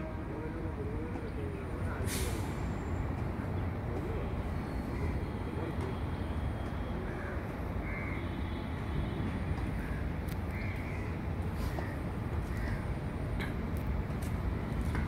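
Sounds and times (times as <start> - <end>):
crows cawing: 7.0 - 8.4, 9.7 - 13.0.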